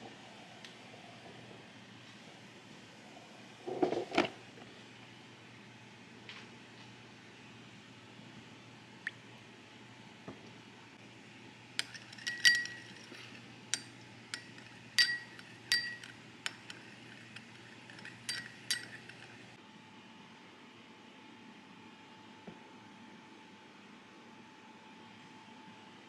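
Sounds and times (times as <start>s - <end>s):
metal spoon clinking glass bowl: 11.8s - 19.4s.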